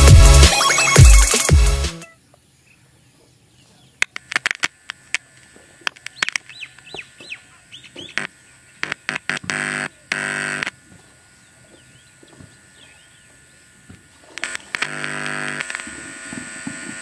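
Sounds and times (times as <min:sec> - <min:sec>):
electrical buzz from loudspeaker: 0:00.0 - 0:02.2, 0:03.9 - 0:17.0
birds chirping: 0:02.1 - 0:15.4
cable clicks and pops: 0:04.0 - 0:05.2.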